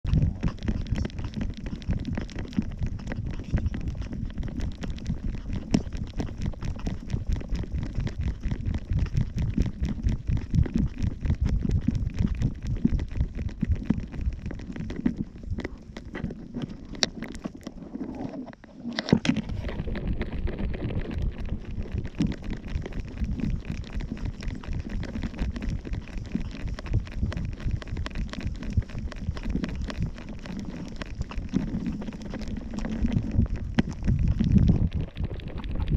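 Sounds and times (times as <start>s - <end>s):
wind buffeting microphone: 19.2s - 35.9s.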